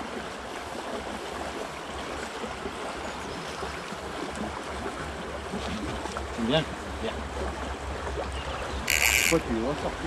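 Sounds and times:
river water flowing: 0:00.0 - 0:10.0.

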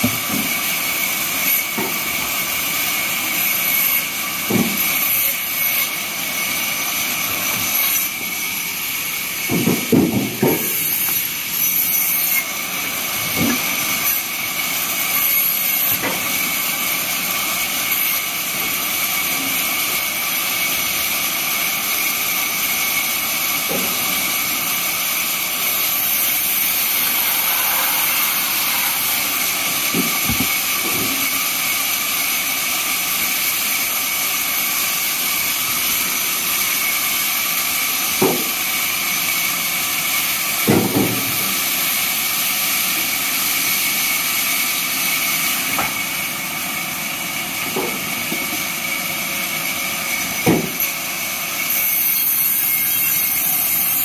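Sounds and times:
band saw whining: 0:13.2 - 0:33.4.

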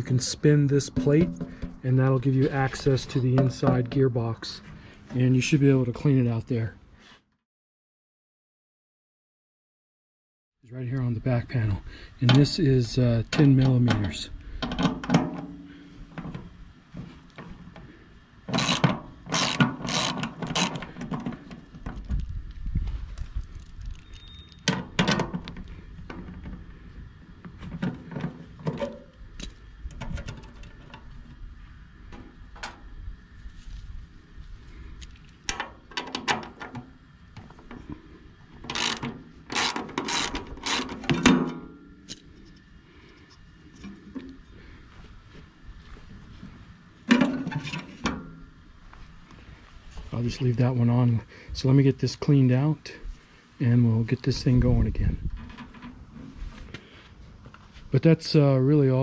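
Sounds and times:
ratchet wrench clicking: 0:18.5 - 0:20.8, 0:38.7 - 0:41.0.

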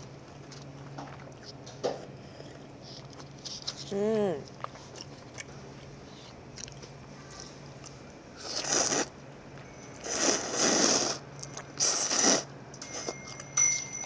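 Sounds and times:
noodles being slurped: 0:08.4 - 0:09.1, 0:10.0 - 0:12.5.

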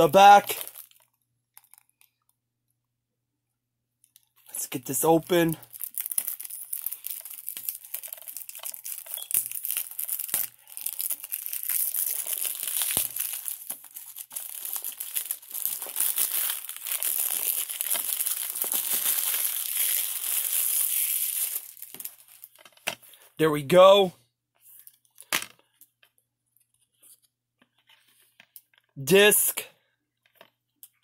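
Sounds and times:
plastic wrap crinkling and tearing: 0:00.0 - 0:02.3, 0:04.5 - 0:22.8.

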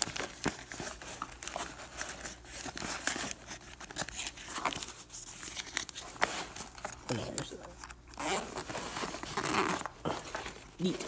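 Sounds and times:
nylon bag rustling: 0:08.2 - 0:11.0.

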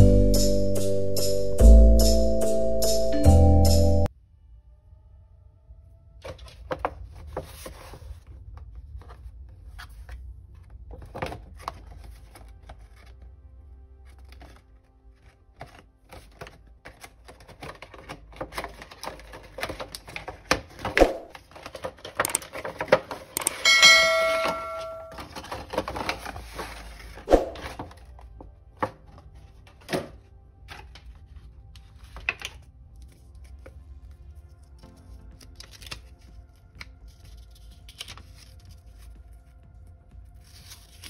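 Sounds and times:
bell-like notification chime: 0:00.0 - 0:04.1, 0:23.4 - 0:25.2
cardboard packaging rustling: 0:06.3 - 0:13.3, 0:14.0 - 0:23.7, 0:25.1 - 0:29.9.

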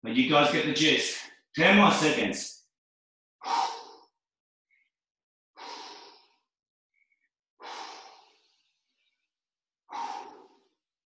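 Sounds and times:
man breathing out hard: 0:03.4 - 0:04.1, 0:05.6 - 0:06.5, 0:07.6 - 0:08.6, 0:09.9 - 0:10.8.

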